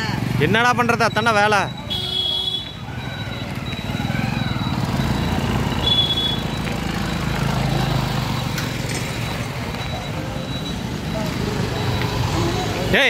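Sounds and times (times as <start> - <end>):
motorcycle engines rumbling: 0.0 - 13.0
short high beep: 1.6 - 6.6.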